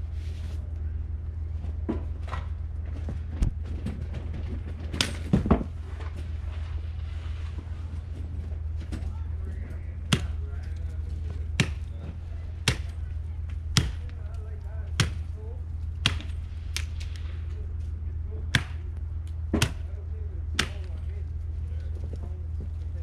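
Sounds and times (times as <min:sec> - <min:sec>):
machete chopping branch: 0:11.6 - 0:11.9, 0:12.6 - 0:13.0, 0:13.7 - 0:14.2, 0:15.0 - 0:15.3, 0:16.0 - 0:17.2, 0:18.5 - 0:18.9, 0:19.5 - 0:19.9, 0:20.5 - 0:20.9.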